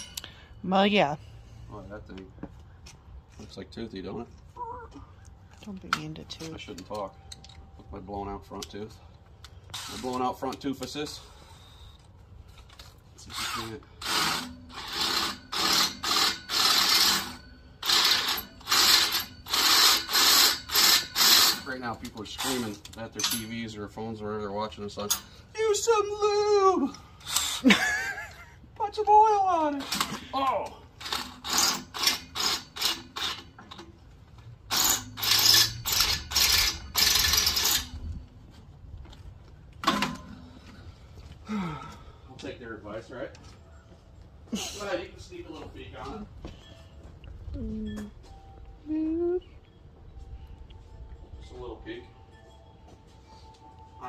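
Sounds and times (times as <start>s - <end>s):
drill grinding into steel: 13.3s - 21.7s, 31.0s - 33.5s, 34.7s - 37.9s.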